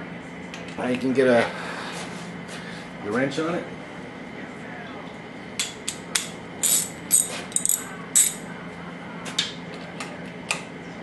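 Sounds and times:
socket ratchet clicking: 0:06.6 - 0:08.4.

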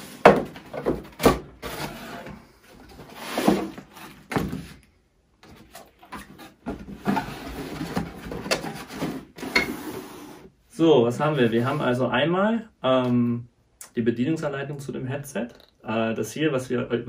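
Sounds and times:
cardboard flaps scraping: 0:00.0 - 0:04.8
rustling packing contents: 0:00.0 - 0:04.8, 0:05.4 - 0:10.4.

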